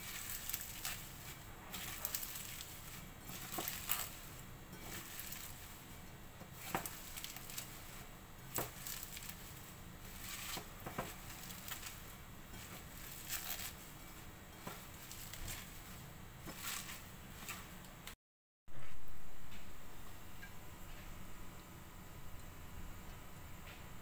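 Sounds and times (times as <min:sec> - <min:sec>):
kale leaves crinkling and crunching: 0:00.0 - 0:17.7.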